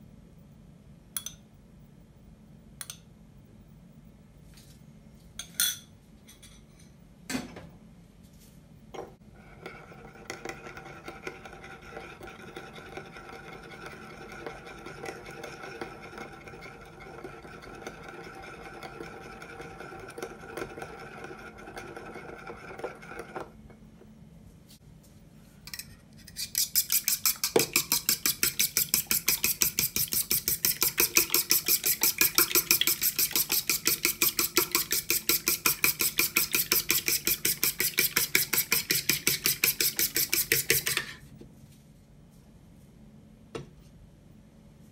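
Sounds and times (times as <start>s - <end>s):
fork beating eggs in bowl: 9.2s - 23.6s, 25.7s - 41.2s
fork scraping ceramic bowl: 9.3s - 23.5s, 25.8s - 41.2s.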